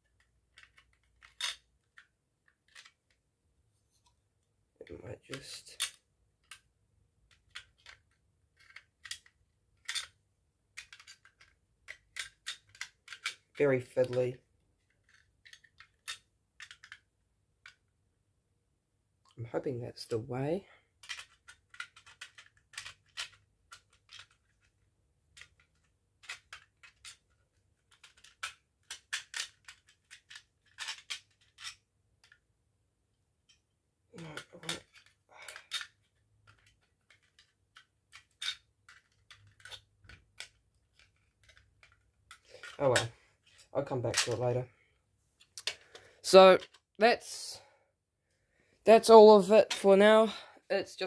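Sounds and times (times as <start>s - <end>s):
plastic clicks and scrapes: 0.0s - 3.2s, 7.3s - 17.8s, 21.0s - 32.4s, 34.2s - 44.5s.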